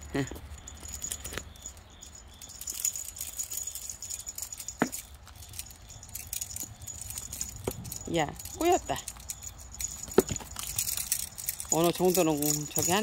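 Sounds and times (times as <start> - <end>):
cat toy jingling and clicking: 0.0 - 13.0.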